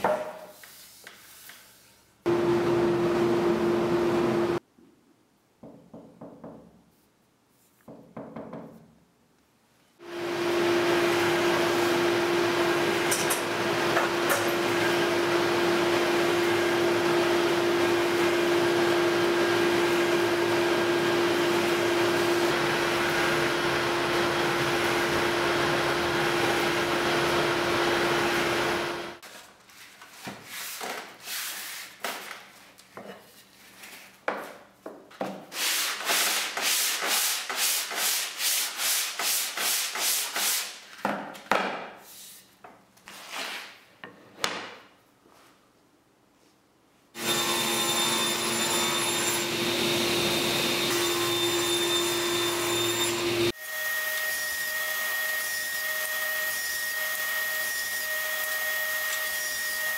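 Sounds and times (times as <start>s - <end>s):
hand sanding strokes: 30.4s - 32.0s, 35.5s - 40.8s.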